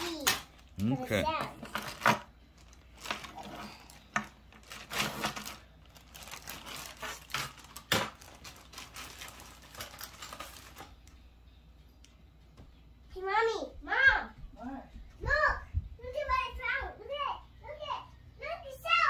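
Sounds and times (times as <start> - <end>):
seashells clattering in plastic bag: 1.7 - 11.0
plastic bag crinkling: 1.7 - 11.2.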